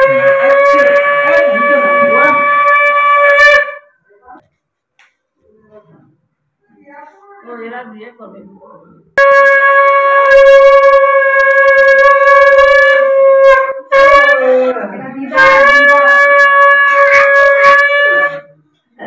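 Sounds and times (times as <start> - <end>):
conch shell blasts: 0.0 - 3.9, 9.2 - 18.6.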